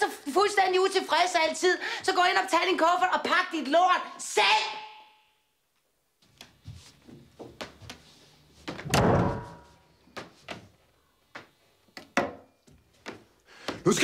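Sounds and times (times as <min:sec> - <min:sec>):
footsteps: 0:06.2 - 0:10.7
door slamming: 0:08.7 - 0:09.8.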